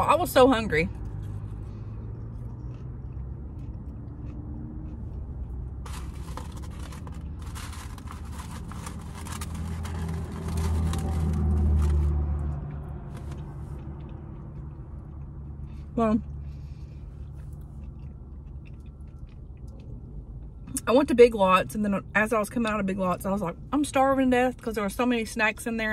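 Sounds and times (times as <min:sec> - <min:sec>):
low engine hum: 0:00.0 - 0:25.9
passing vehicle: 0:00.0 - 0:25.9
food packaging crackling: 0:05.8 - 0:12.2.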